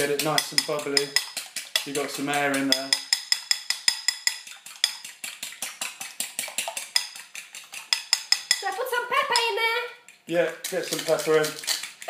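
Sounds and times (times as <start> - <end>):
whisk clicking against ceramic bowl: 0.0 - 12.0
person speaking: 8.6 - 11.8.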